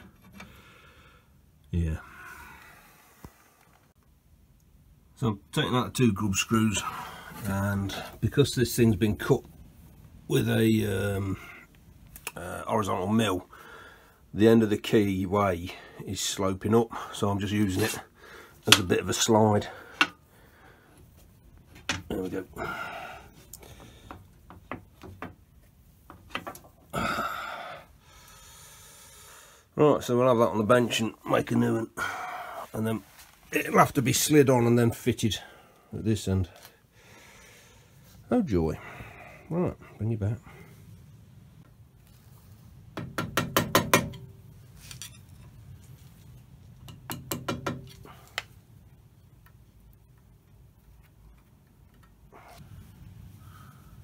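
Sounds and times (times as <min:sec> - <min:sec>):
hammer tapping on steel: 0:43.0 - 0:44.3, 0:46.9 - 0:48.0.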